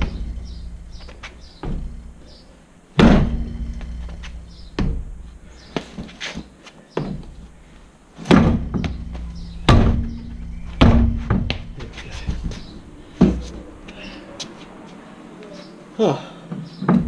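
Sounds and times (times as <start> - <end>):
heavy thuds with low ring: 0.0 - 2.2, 3.0 - 5.4, 8.3 - 13.8
foot kicking car tyre: 3.0 - 7.4, 8.2 - 14.0.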